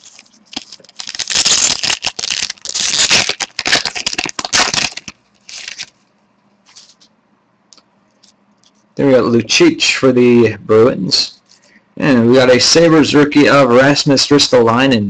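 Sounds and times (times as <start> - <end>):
wrapper tearing and crinkling: 0.0 - 6.0.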